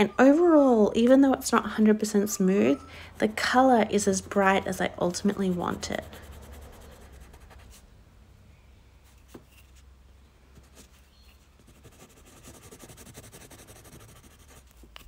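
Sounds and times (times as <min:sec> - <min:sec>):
coloured pencil scratching paper: 0:04.2 - 0:07.8, 0:11.6 - 0:15.0.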